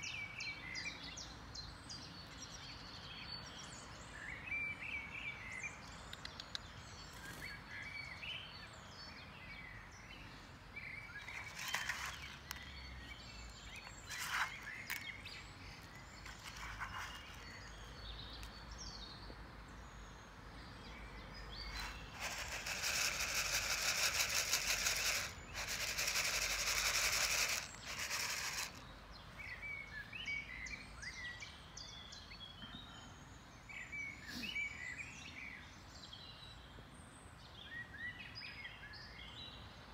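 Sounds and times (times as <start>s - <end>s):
birds chirping: 0.0s - 35.5s
outdoor background noise: 0.0s - 39.9s.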